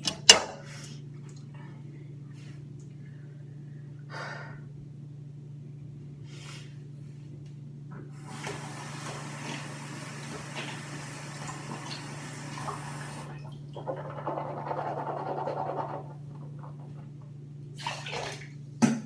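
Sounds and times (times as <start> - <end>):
tap water splashing into sink: 8.3 - 13.6, 17.8 - 19.0.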